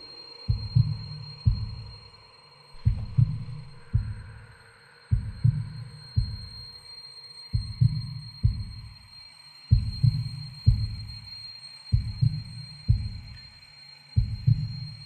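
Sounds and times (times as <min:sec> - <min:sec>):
deep heavy thumps: 0:02.8 - 0:04.3.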